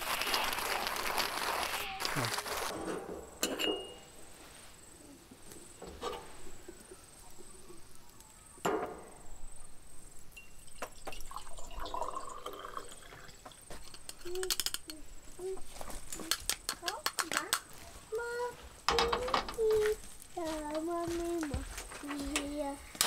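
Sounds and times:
water pouring into cup: 0:00.0 - 0:02.7, 0:10.6 - 0:13.6.

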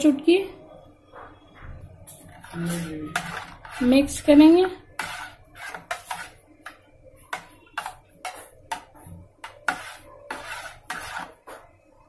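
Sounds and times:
metal spoon scraping metal pan: 0:02.3 - 0:11.5.

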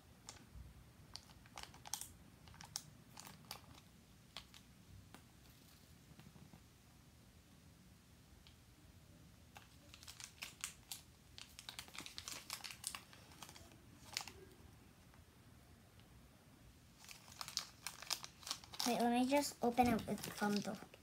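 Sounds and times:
plastic wrapper crinkling: 0:01.1 - 0:04.6, 0:09.6 - 0:14.6, 0:16.9 - 0:21.0.

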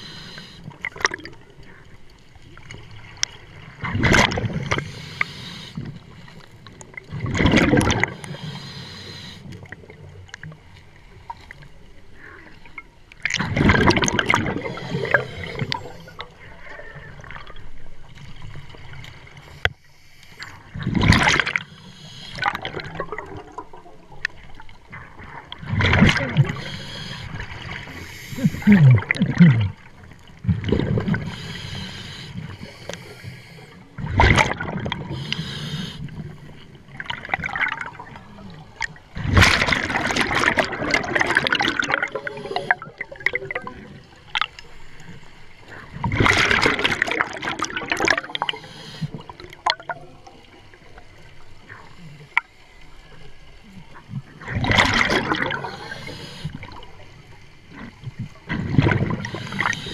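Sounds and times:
bubbling bursts of exhaled air: 0:13.4 - 0:16.3, 0:25.7 - 0:33.2, 0:39.2 - 0:44.0, 0:46.0 - 0:50.0, 0:54.5 - 0:57.0
regulator hiss: 0:55.7 - 0:56.6.

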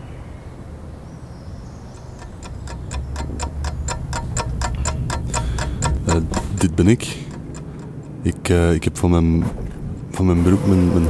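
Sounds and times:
rapid mechanical ticking: 0:01.9 - 0:09.2.

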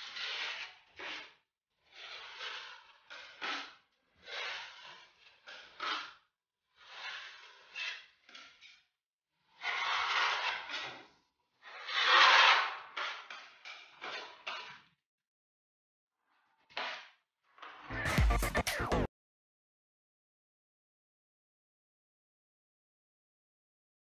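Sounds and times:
blades scraping against each other: 0:00.0 - 0:14.9
plastering blade scraping wall: 0:00.0 - 0:15.0.

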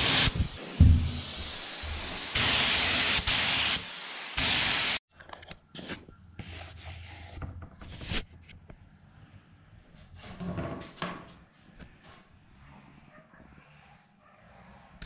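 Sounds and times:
pressurized spray bursts: 0:00.0 - 0:05.0.

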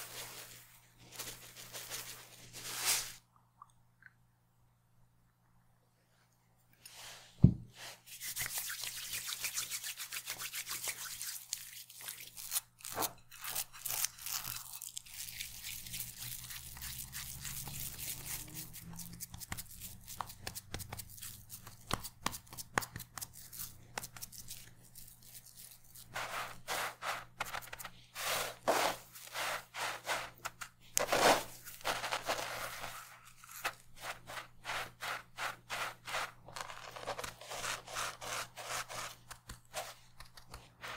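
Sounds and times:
hands squishing soft mixture: 0:06.6 - 0:40.9
breadcrumbs crunching: 0:13.4 - 0:40.9.

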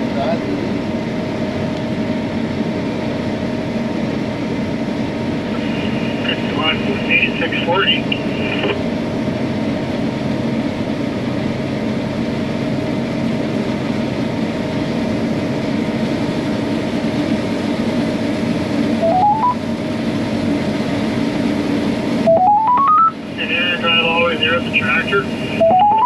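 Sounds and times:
combine harvester running: 0:01.5 - 0:26.0
rising electronic beeps: 0:19.0 - 0:19.7, 0:22.3 - 0:23.2, 0:25.6 - 0:26.0.

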